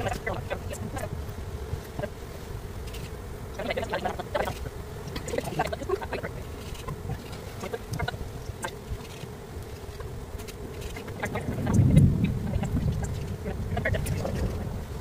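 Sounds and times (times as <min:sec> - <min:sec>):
bees buzzing: 0:00.0 - 0:15.0.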